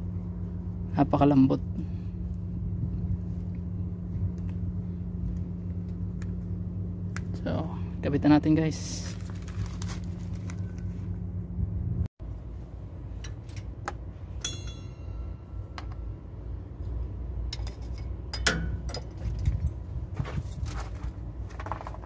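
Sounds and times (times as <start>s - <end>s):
low steady rumble: 0.0s - 22.0s
small metallic clicks and clinks: 17.5s - 19.8s.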